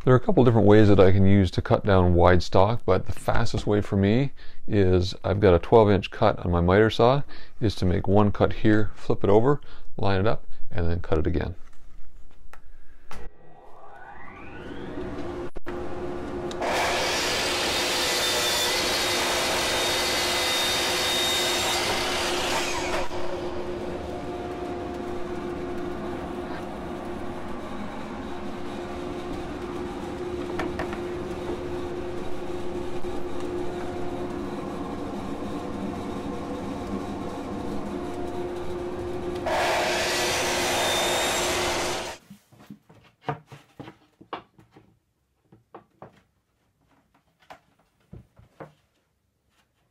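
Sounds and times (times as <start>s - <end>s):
dust collector drone: 13.4s - 42.2s
miter saw cutting plywood: 13.4s - 42.2s.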